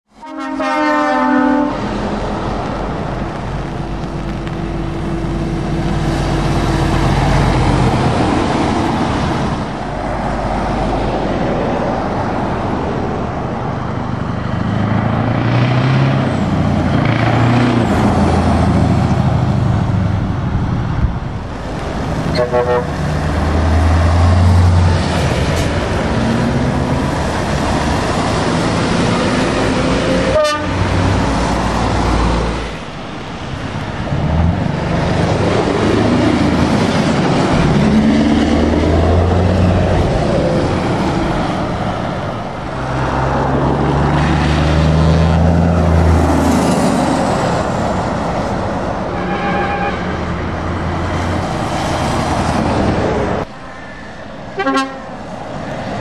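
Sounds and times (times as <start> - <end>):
truck air horn: 0.1 - 1.9, 22.3 - 23.1, 30.0 - 30.9, 49.1 - 50.2, 54.6 - 55.1
diesel lorry engines: 0.1 - 56.0
tyres hissing on wet road: 21.2 - 48.8.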